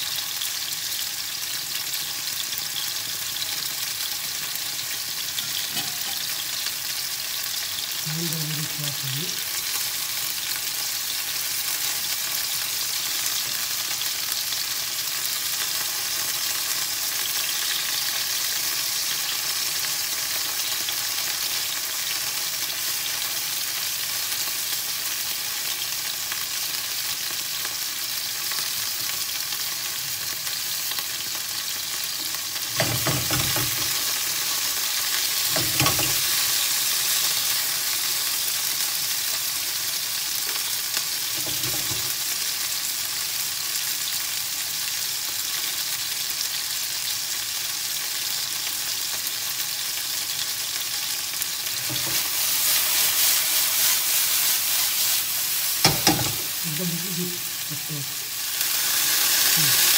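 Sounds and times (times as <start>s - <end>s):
meat sizzling in a pan: 0.0s - 59.9s
wooden spatula knocking pan: 32.8s - 34.0s, 55.8s - 56.5s.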